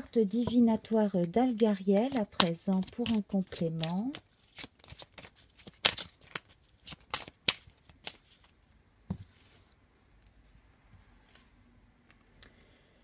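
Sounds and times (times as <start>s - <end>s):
cards being shuffled: 0.2s - 8.5s.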